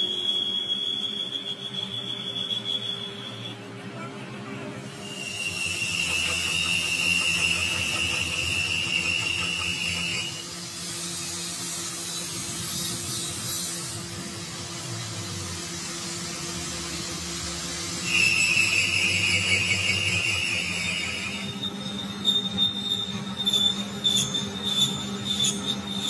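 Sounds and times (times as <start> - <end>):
cutting tool squealing: 5.0 - 14.0, 18.0 - 26.0
spinning crankshaft hiss: 5.0 - 21.5
lathe humming: 5.1 - 14.0, 18.0 - 26.0.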